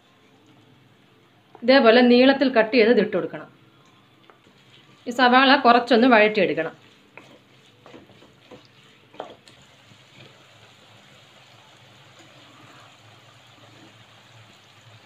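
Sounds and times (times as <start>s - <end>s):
onions sizzling in oil: 4.5s - 15.0s
pot of rice bubbling: 6.6s - 15.0s
spatula knocking in pan: 7.1s - 9.5s.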